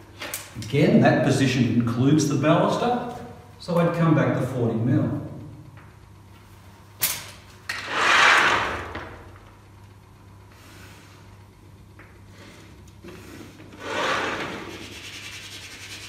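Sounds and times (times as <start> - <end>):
scraping rub on chalkboard: 13.1 - 16.0.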